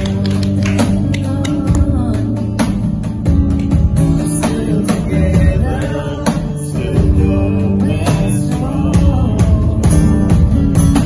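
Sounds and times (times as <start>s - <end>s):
woman singing into microphone: 0.0s - 2.8s
strummed acoustic guitar: 0.0s - 11.0s.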